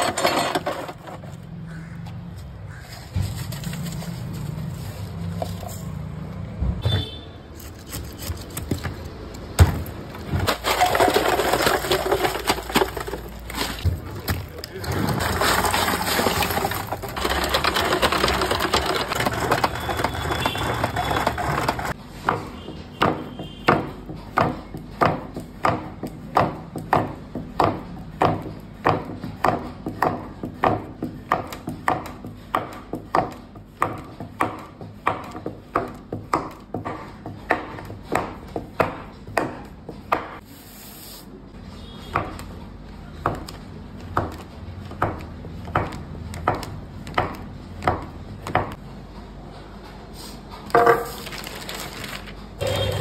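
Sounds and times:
dense rattling and scraping: 0.0 - 1.5, 7.7 - 22.0
ice cream churn knocking: 10.3 - 22.0.

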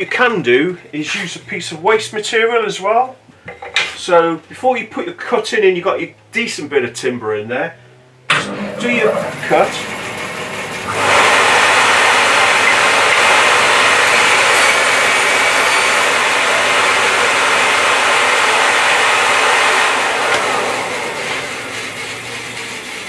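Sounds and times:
bandsaw cutting timber: 8.3 - 23.0.

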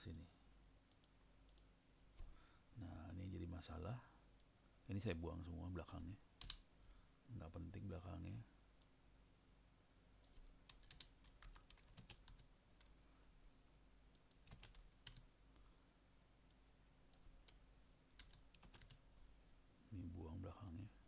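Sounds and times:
faint steady hum: 0.0 - 21.0
computer keyboard keystrokes: 6.4 - 6.6, 10.3 - 12.9, 14.2 - 15.2, 18.2 - 19.0.

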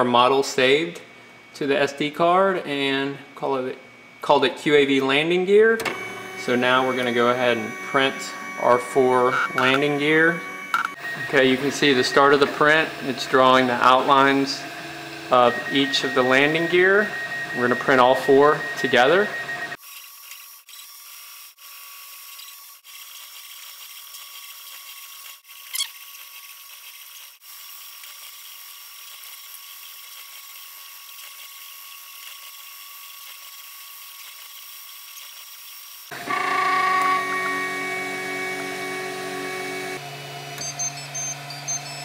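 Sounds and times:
printer stepper motors whining: 5.8 - 19.8, 36.1 - 42.0.

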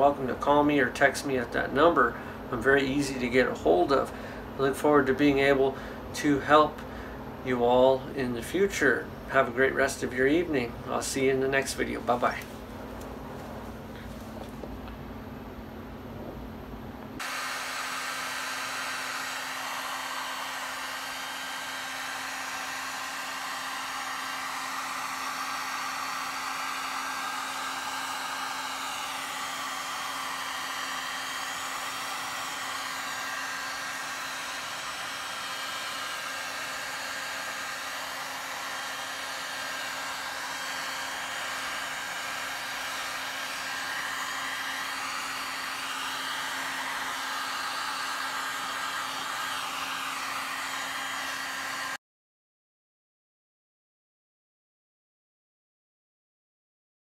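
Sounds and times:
heat gun blowing air: 10.2 - 14.6, 17.2 - 52.0.

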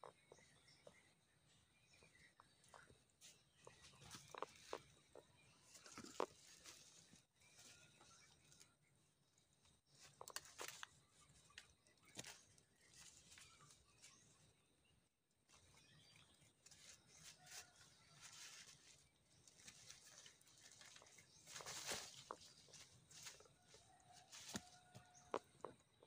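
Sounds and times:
rustling in dry leaves: 16.7 - 24.9.

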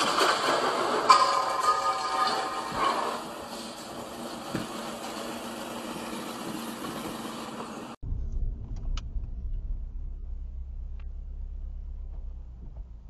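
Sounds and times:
low rumble of car cabin: 8.0 - 13.0.

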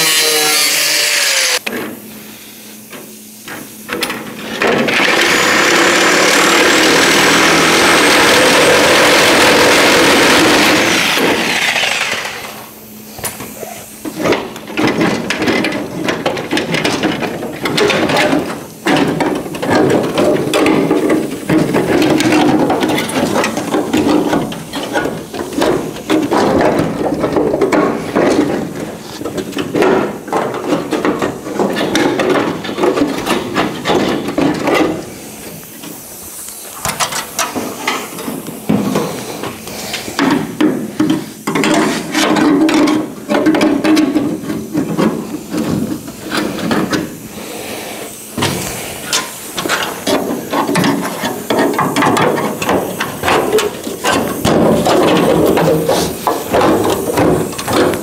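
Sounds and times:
pneumatic tool cutting sheet steel: 0.0 - 1.8, 2.9 - 26.9, 43.7 - 58.0
air hissing: 0.0 - 15.2, 34.9 - 42.2, 44.2 - 58.0.

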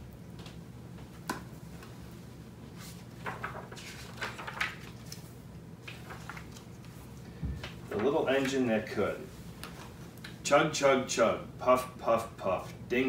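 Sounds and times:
pages rustling: 2.7 - 9.0.

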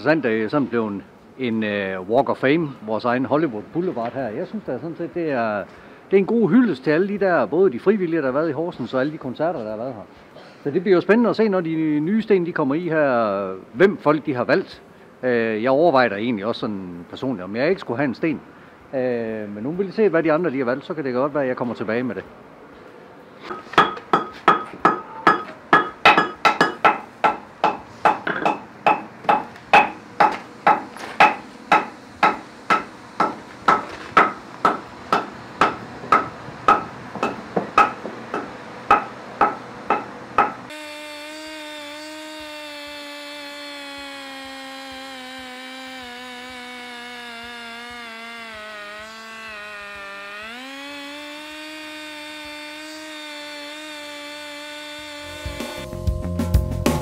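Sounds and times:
ringing hammer blows: 23.5 - 41.5
pneumatic engraving tool whining: 40.4 - 55.9.

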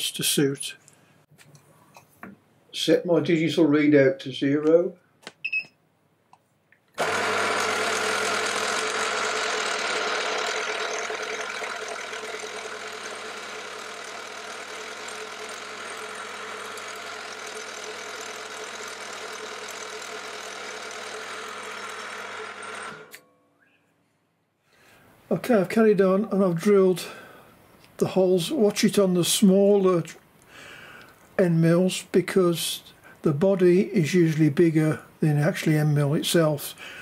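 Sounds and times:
drill boring into wood: 7.0 - 23.2.

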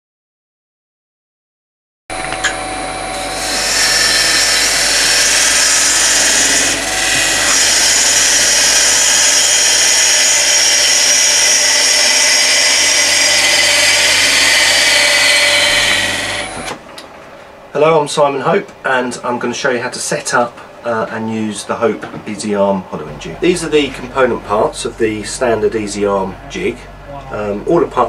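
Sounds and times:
lathe motor hum: 2.1 - 17.2
hiss of wood lathe cutting: 3.0 - 16.8.

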